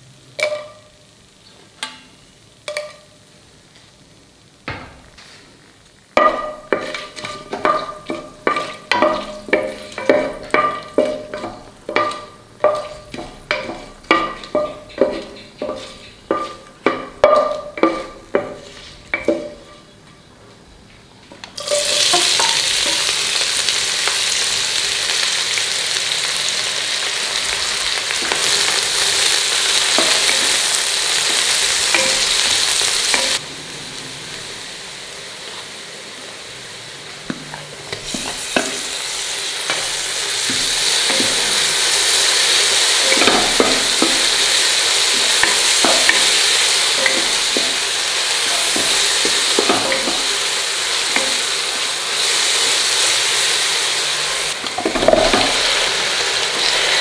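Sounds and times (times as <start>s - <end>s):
onions sizzling in hot oil: 0.0s - 20.0s, 21.4s - 57.0s
wooden spatula knocking metal pot: 6.2s - 19.9s, 21.6s - 23.1s, 29.8s - 33.4s, 38.1s - 39.0s, 39.7s - 41.9s, 43.0s - 50.5s, 51.1s - 51.6s, 54.6s - 55.7s.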